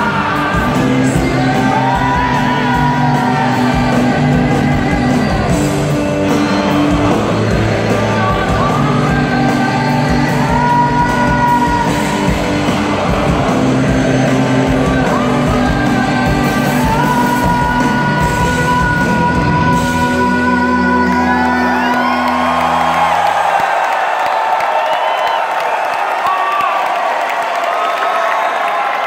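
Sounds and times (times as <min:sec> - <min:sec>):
man singing long notes: 0:00.0 - 0:23.0
live rock band playing: 0:00.0 - 0:23.5
audience yelling and whooping: 0:00.0 - 0:29.0.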